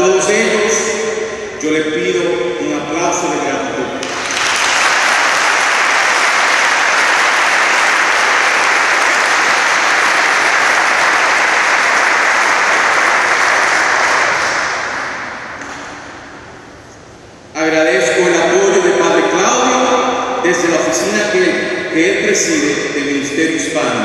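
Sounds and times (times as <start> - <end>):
audience applauding: 4.0 - 15.6.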